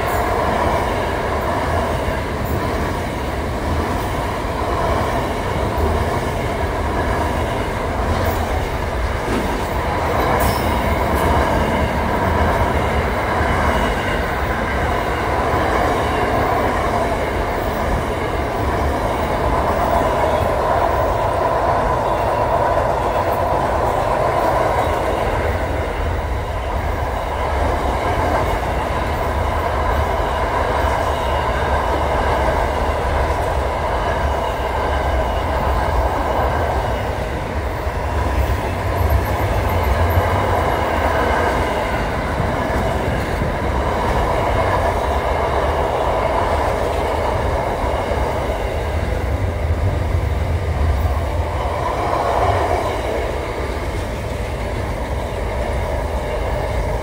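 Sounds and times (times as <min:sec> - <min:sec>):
train wheels rumbling on rail: 0:00.0 - 0:57.0
high ringing from wheels: 0:10.2 - 0:11.9.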